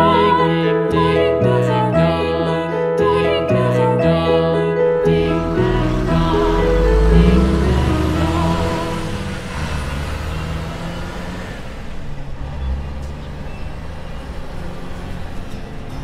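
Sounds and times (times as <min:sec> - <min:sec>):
truck engine running: 0:04.8 - 0:16.0.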